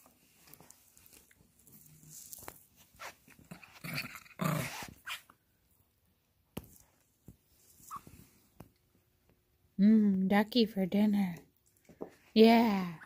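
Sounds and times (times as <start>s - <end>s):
small dog growling in play: 3.5s - 5.1s.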